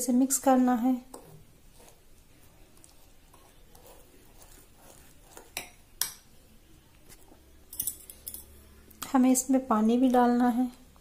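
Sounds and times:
fork scraping in glass bowl: 1.1 - 2.0, 2.8 - 5.8.

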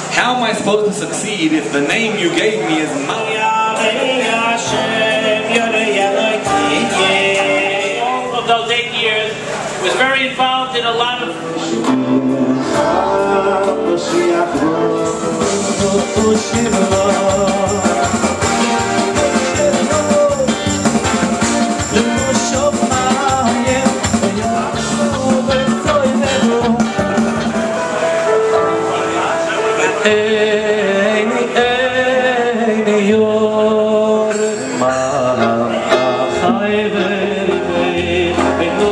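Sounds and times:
man singing into microphone: 1.4 - 9.4, 10.0 - 27.9, 28.8 - 38.9
amplified band with steady beat: 2.4 - 9.9, 11.3 - 31.0.

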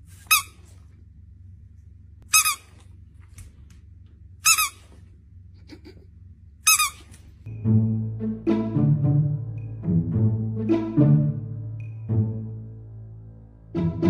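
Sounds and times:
squeaky dog toy squeaking: 0.2 - 0.7, 2.2 - 2.8, 4.4 - 5.0, 6.6 - 7.2.

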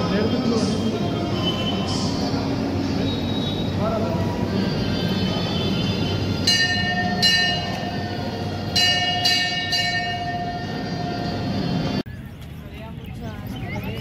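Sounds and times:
crowd hubbub: 0.0 - 14.0
temple bell ringing: 4.4 - 12.0.

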